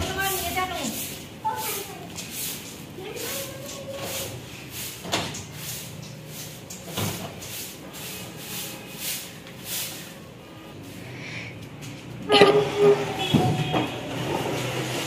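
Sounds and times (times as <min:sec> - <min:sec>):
broom sweeping concrete floor: 0:00.0 - 0:15.0.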